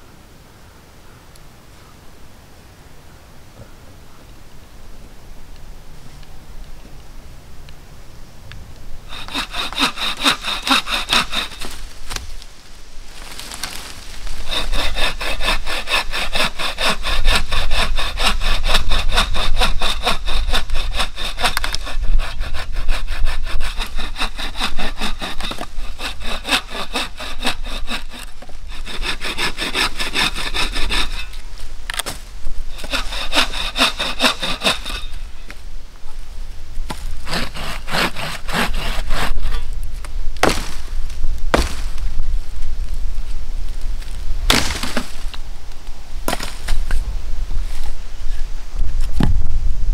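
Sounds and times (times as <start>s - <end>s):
bucksaw cutting branches: 9.1s - 12.5s, 13.1s - 35.6s, 36.9s - 39.7s, 40.4s - 42.2s, 44.0s - 45.4s, 46.3s - 47.0s.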